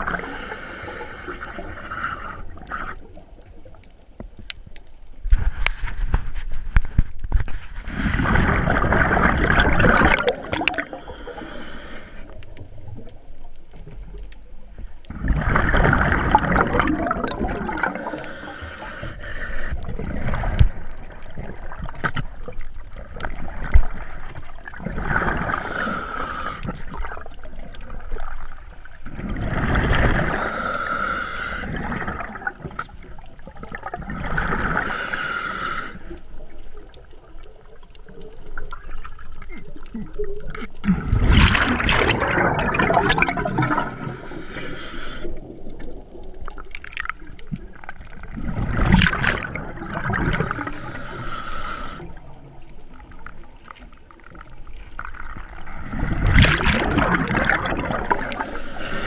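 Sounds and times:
diver breathing through regulator: 0.0 - 3.2, 10.2 - 12.6, 17.6 - 21.0, 25.3 - 27.1, 30.0 - 32.3, 34.5 - 36.3, 43.2 - 45.8, 50.4 - 52.4, 58.0 - 59.0
exhaled bubbles gurgling: 0.0 - 6.2, 7.2 - 59.0.

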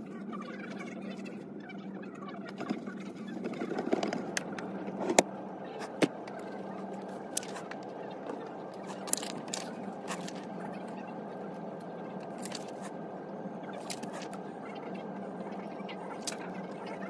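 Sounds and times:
low room hum: 0.0 - 17.0
paper rustling: 8.9 - 10.4, 13.8 - 14.3.

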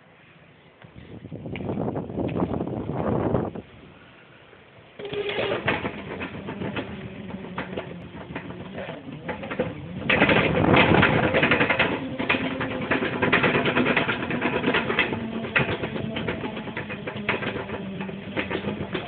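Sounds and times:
skateboard wheels rattling: 5.0 - 19.0.

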